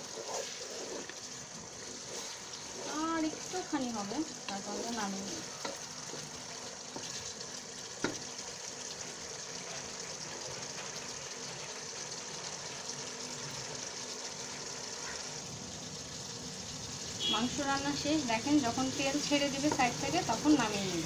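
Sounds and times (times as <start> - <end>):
curry sizzling in a pot: 0.0 - 21.0.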